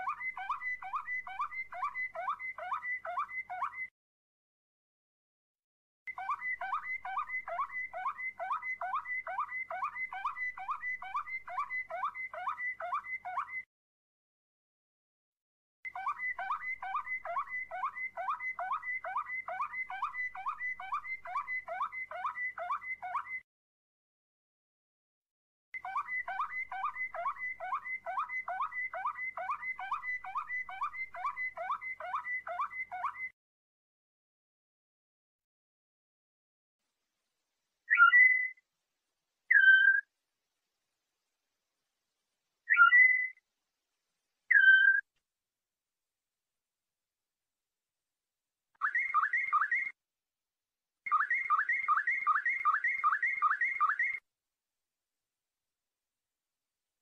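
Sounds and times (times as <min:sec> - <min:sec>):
canary whistling song: 0:00.0 - 0:03.9, 0:06.1 - 0:13.7, 0:15.9 - 0:23.4, 0:25.8 - 0:33.4, 0:37.9 - 0:38.6, 0:39.5 - 0:40.1, 0:42.7 - 0:43.4, 0:44.5 - 0:45.1, 0:48.8 - 0:50.0, 0:51.1 - 0:54.2.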